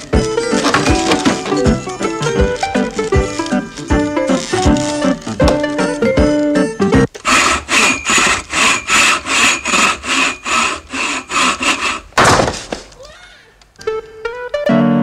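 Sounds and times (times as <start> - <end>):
rhythmic rasping strokes: 0.0 - 5.5, 7.1 - 12.2
loud noisy burst: 7.2 - 12.2.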